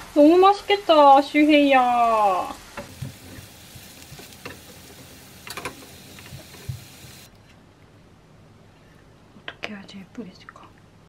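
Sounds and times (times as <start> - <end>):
vegetables sizzling in oil: 0.0 - 7.3.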